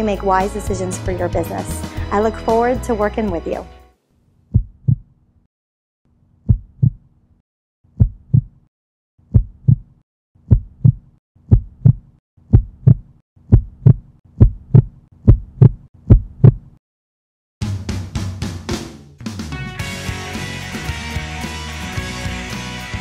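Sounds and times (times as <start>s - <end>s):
heartbeat thumps: 4.5s - 5.1s, 6.4s - 7.1s, 7.9s - 8.6s, 9.3s - 16.8s.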